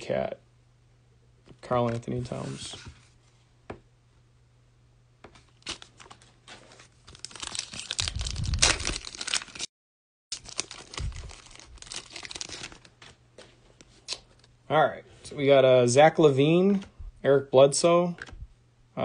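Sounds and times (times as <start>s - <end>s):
foil wrapper tearing and crinkling: 7.0s - 9.7s, 10.3s - 13.0s.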